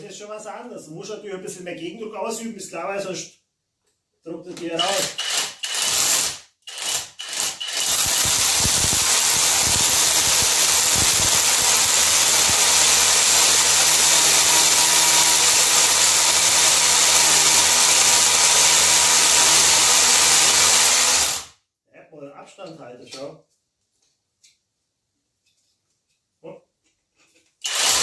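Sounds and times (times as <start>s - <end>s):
rotary hammer drilling concrete: 4.8s - 21.5s, 27.6s - 28.0s.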